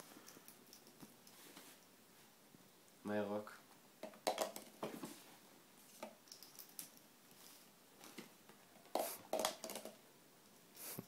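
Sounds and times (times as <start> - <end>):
plastic ring clattering: 9.0 - 10.0
plastic toy clicks and knocks: 9.3 - 10.0.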